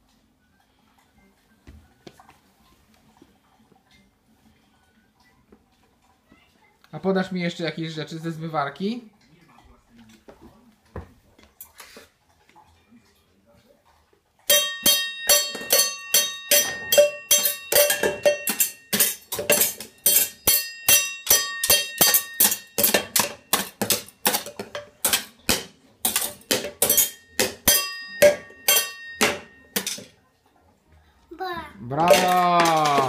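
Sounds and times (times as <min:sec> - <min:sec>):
metal utensils banging on pots: 0:14.4 - 0:30.2, 0:32.0 - 0:33.0.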